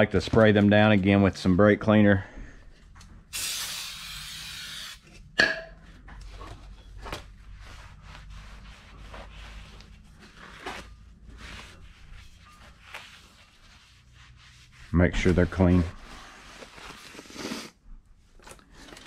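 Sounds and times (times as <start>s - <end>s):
aerosol spray hiss: 3.3s - 5.0s
handling knocks and rubbing: 5.8s - 17.1s.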